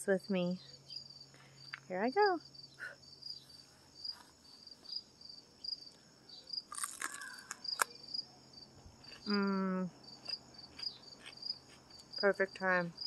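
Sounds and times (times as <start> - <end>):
crickets chirping: 0.0 - 13.0
crunchy bite into pepper: 6.7 - 8.0, 8.9 - 9.4, 10.2 - 12.2
closed-mouth mmm: 6.8 - 7.9.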